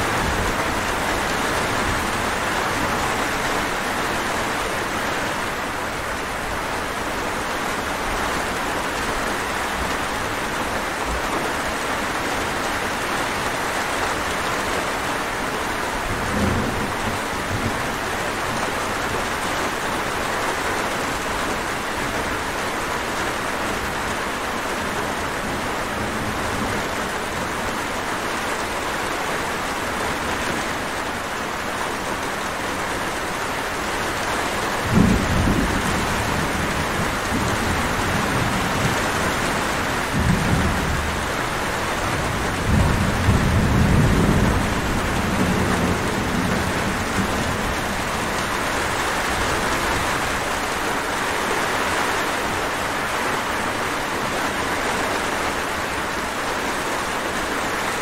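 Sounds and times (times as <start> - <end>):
steady rain hissing: 0.0 - 58.0
distant thunder rumble: 34.8 - 50.6.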